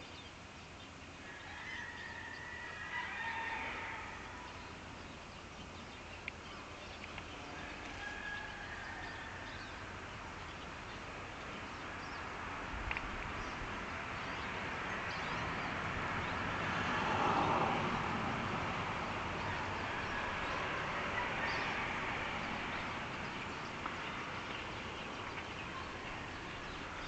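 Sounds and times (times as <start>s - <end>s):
steady background hiss: 0.0s - 16.8s.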